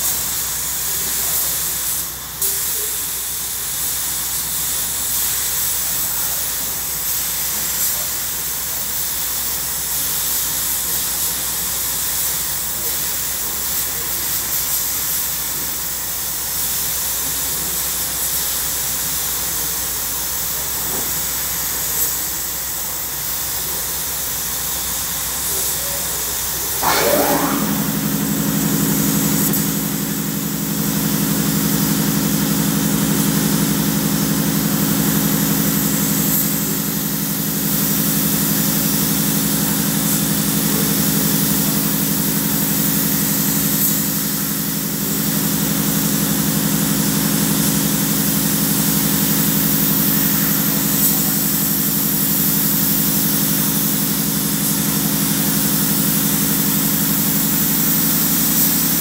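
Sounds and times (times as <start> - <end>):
paint spray gun hissing: 25.0 - 40.1, 47.4 - 59.0
low machine hum: 26.8 - 34.8.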